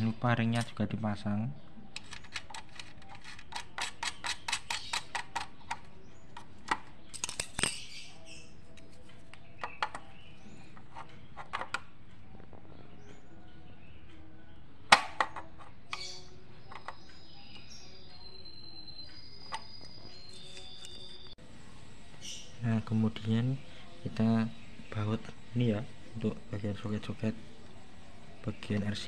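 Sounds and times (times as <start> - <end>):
small metal clicks and clinks: 7.1 - 8.0.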